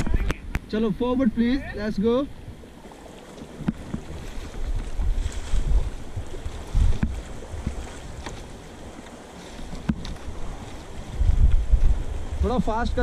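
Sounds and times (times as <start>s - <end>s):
river water rushing: 0.0s - 13.0s
wind rumbling on microphone: 0.0s - 13.0s
paddle knocks and splashes: 2.5s - 12.5s.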